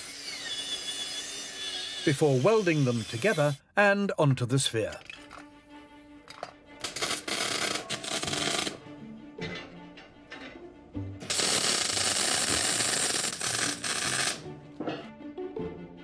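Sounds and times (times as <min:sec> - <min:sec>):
arc welding crackling hiss: 0:06.9 - 0:08.7, 0:11.2 - 0:14.4.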